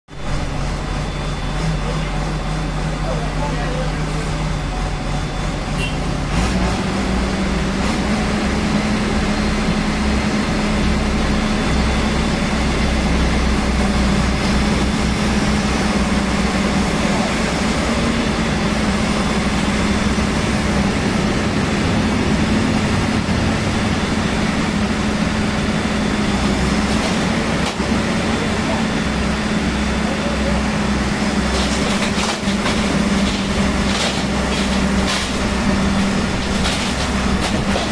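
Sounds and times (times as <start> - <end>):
heavy diesel engine running: 0.1 - 37.9.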